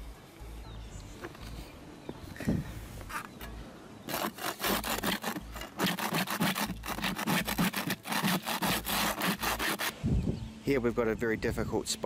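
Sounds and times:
scraper blade scraping roof: 4.1 - 9.9.

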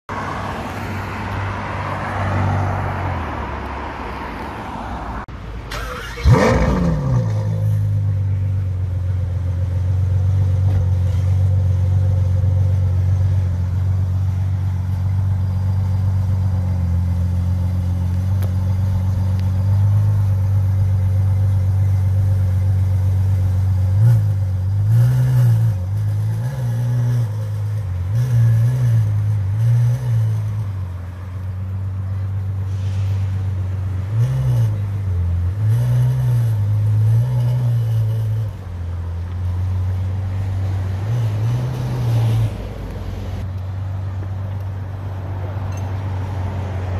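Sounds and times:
car driving past: 0.1 - 8.4
car engine starting and idling: 4.7 - 24.9.

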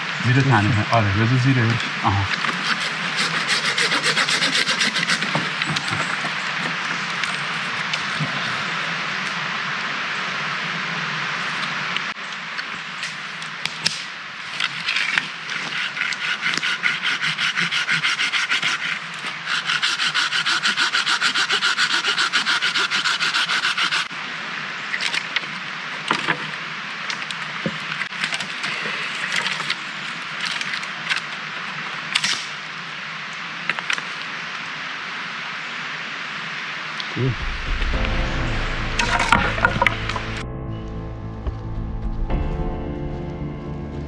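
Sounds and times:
hand saw cutting wood: 2.3 - 5.9, 15.1 - 24.1
rustling of branches: 11.3 - 32.9.

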